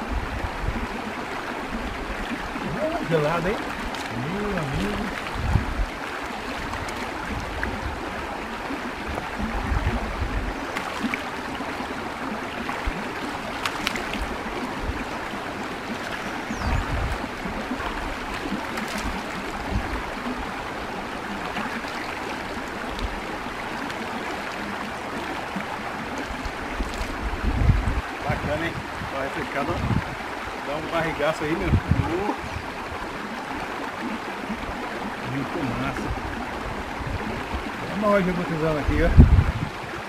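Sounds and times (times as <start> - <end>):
stream babbling over rocks: 0.0 - 40.0
hands splashing water: 3.5 - 5.5, 10.7 - 11.4, 12.7 - 14.4, 17.8 - 19.6, 26.8 - 27.2.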